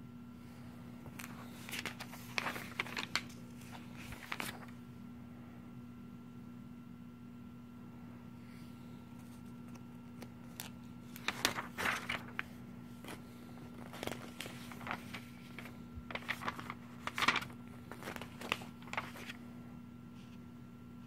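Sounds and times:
faint steady hum: 0:00.0 - 0:21.0
paper pages rustling: 0:01.0 - 0:04.8, 0:09.2 - 0:19.4.

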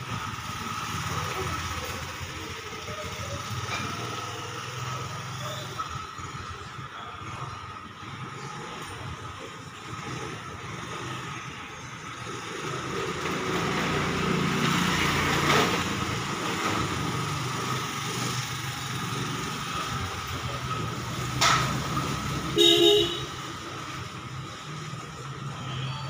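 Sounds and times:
motor scooter passing: 0:00.0 - 0:26.0
vehicle horn toot: 0:22.5 - 0:23.5.

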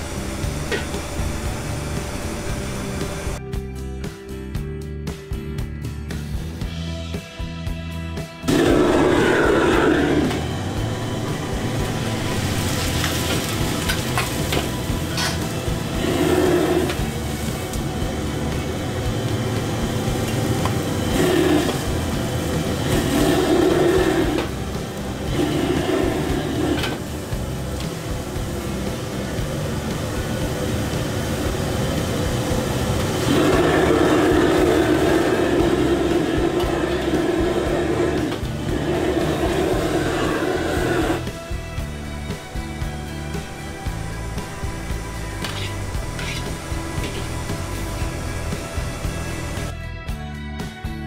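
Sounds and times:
gas burner flaring: 0:00.0 - 0:03.4, 0:08.4 - 0:49.8
food sizzling in a wok: 0:08.5 - 0:41.4, 0:42.4 - 0:49.7
metal ladle scraping a wok: 0:15.0 - 0:15.6, 0:45.4 - 0:47.4.

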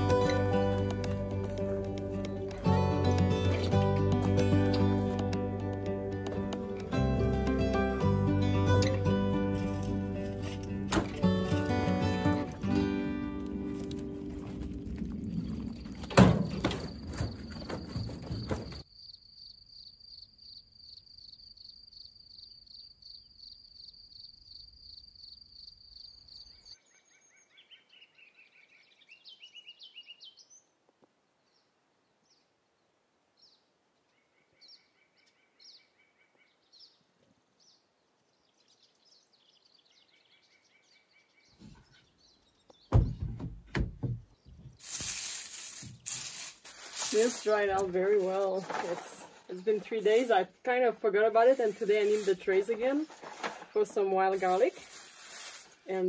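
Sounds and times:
knocks and rustles: 0:13.6 - 0:18.9, 0:42.9 - 0:50.5, 0:51.5 - 0:53.8.

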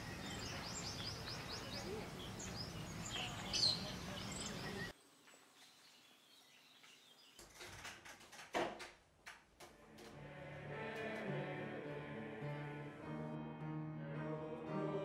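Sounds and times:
birds chirping: 0:00.0 - 0:07.6
outdoor background noise: 0:00.0 - 0:11.0
window opening clicks and knocks: 0:07.4 - 0:10.1.

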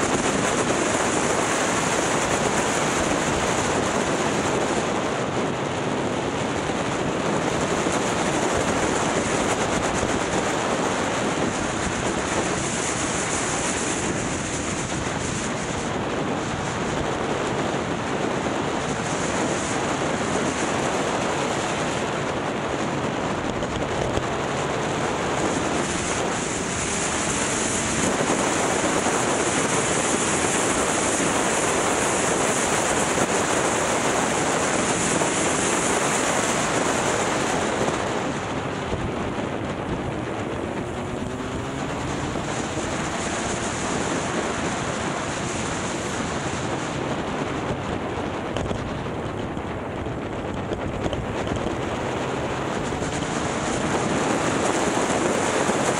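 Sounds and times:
road noise: 0:00.0 - 0:55.9
wind rushing over microphone: 0:00.0 - 0:55.9
motorcycle engine: 0:22.1 - 0:55.9.

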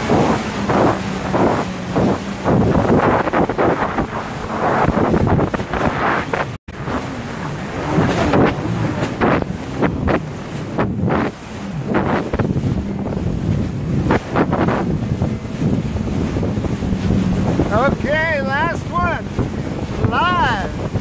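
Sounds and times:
boat engine: 0:00.0 - 0:21.0
water splashing against hull: 0:00.0 - 0:21.0
wind buffeting microphone: 0:00.0 - 0:21.0.

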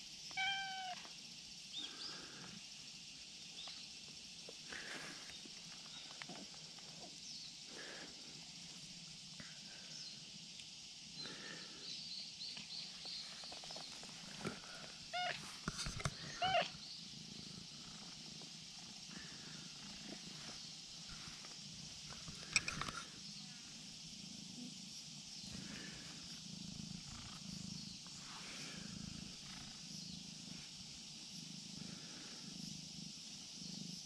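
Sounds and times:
cat meowing: 0:00.3 - 0:01.0, 0:15.1 - 0:15.4, 0:16.4 - 0:16.7.

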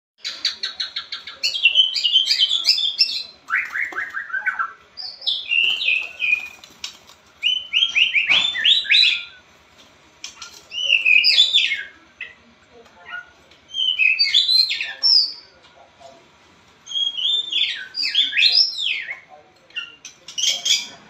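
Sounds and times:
bird singing whistled phrases: 0:10.7 - 0:11.9, 0:13.7 - 0:15.4, 0:16.9 - 0:19.2.

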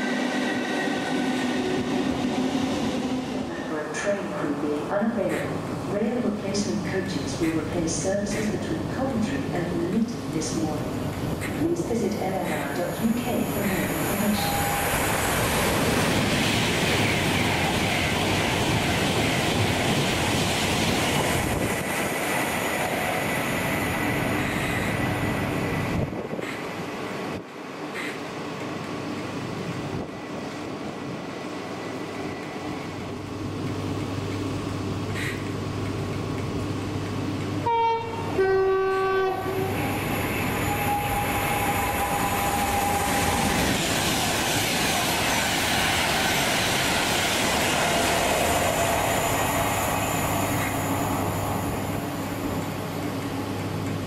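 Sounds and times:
train passing: 0:00.0 - 0:54.0
train horn: 0:37.6 - 0:43.6.

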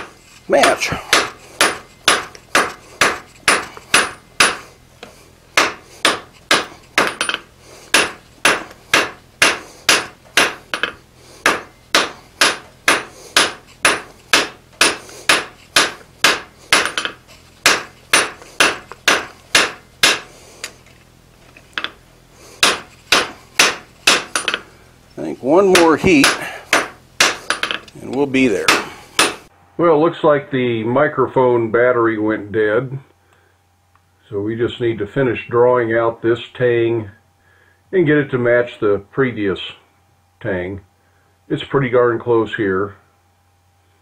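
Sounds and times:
hammer striking hot steel on anvil: 0:00.0 - 0:04.6, 0:05.6 - 0:20.3, 0:22.6 - 0:24.7, 0:25.6 - 0:29.5.

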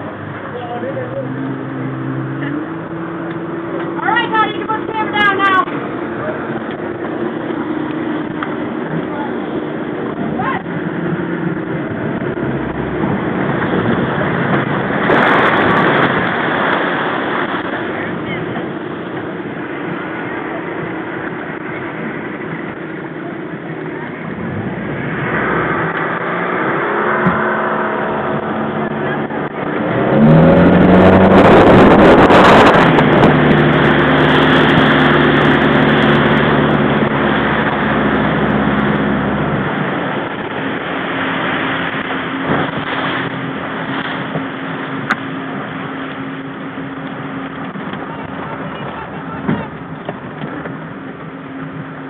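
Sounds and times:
motorboat engine running: 0:00.0 - 0:52.0
water noise: 0:00.0 - 0:52.0
wind: 0:00.0 - 0:52.0.

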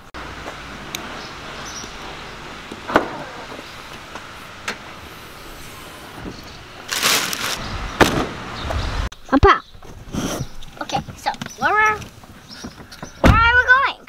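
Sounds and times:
steady outdoor hum: 0:00.0 - 0:14.0.

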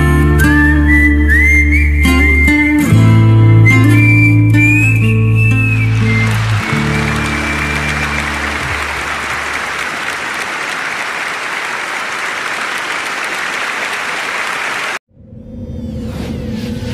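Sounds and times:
song's held notes: 0:04.0 - 0:10.1
audience applauding: 0:05.0 - 0:15.0.

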